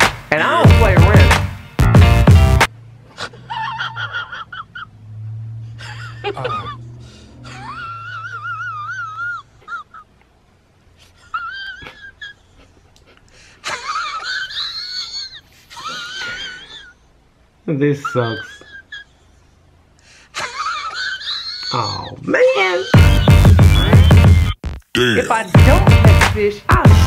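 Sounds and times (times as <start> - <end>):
man mock-crying: 17.9 - 19.1, 25.0 - 25.9.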